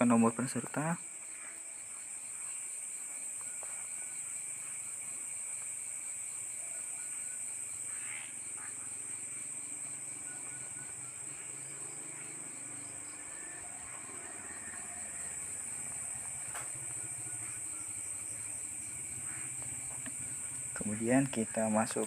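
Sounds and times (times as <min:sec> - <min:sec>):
faint rhythmic pulsing: 0:00.0 - 0:22.0
high-pitched background hiss: 0:00.0 - 0:22.0
faint ticks: 0:16.3 - 0:17.5, 0:19.3 - 0:20.9.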